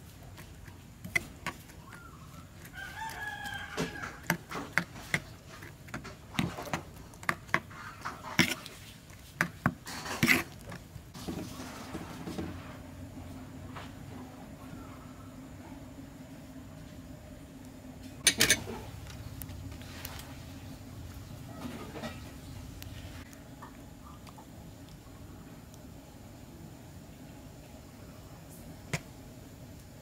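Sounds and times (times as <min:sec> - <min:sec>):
metal spoon scraping a bowl: 0:00.3 - 0:10.8, 0:18.2 - 0:19.2.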